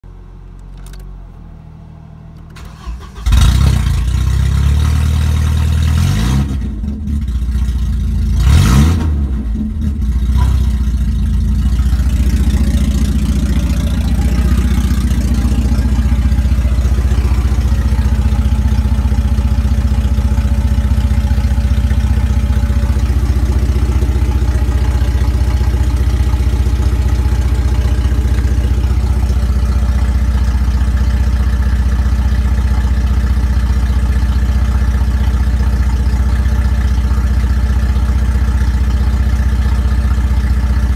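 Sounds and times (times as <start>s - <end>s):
car engine starting and revving: 1.8s - 7.6s, 8.2s - 30.5s.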